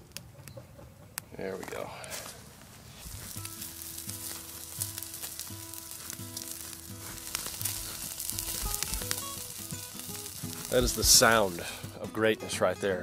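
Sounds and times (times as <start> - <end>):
grease sizzling and popping: 2.9 - 12.0
soft background music: 3.4 - 13.0.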